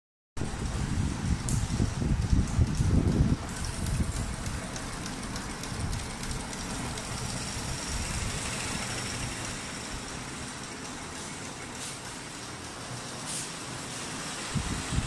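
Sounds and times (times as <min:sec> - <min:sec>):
embroidery machine stitching: 0:03.4 - 0:14.9.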